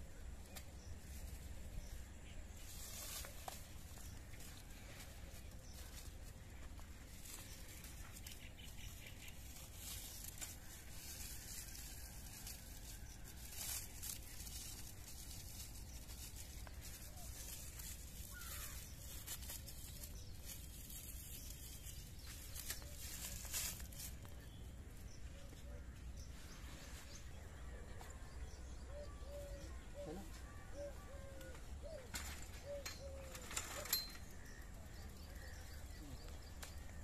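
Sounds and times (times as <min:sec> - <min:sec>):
rope rustling and rubbing: 0:02.6 - 0:24.4.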